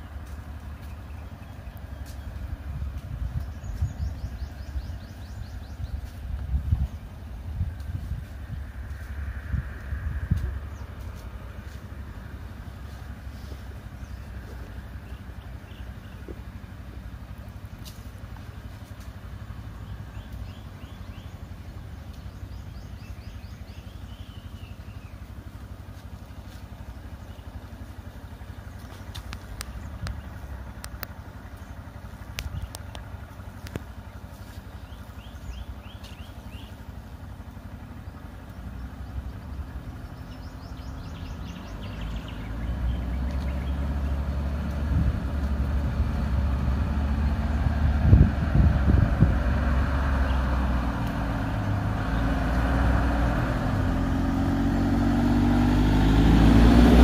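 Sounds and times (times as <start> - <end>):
van engine approaching: 0.0 - 57.0
vehicle engines idling: 0.0 - 57.0
bird chirps: 3.2 - 7.2, 19.7 - 25.3, 33.8 - 37.0, 38.2 - 44.2.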